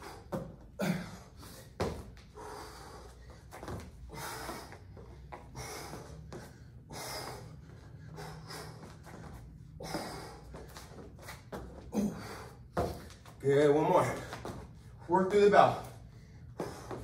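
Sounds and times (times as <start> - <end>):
man breathing hard: 0.0 - 11.0, 11.8 - 13.2, 16.0 - 17.0.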